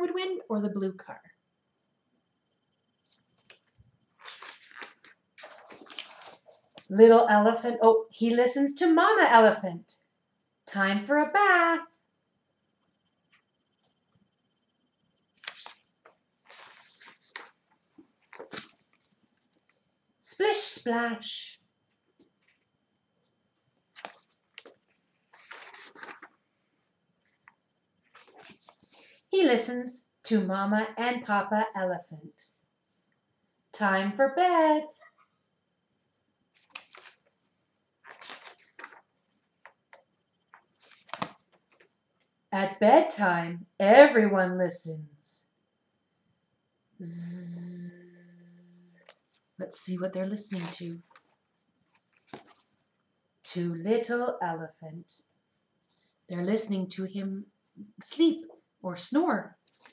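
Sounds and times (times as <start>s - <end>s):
book pages rustling: 3.0s - 6.9s, 15.4s - 19.8s, 23.6s - 26.5s, 27.2s - 29.2s, 36.5s - 42.0s, 50.4s - 53.0s, 59.6s - 59.9s.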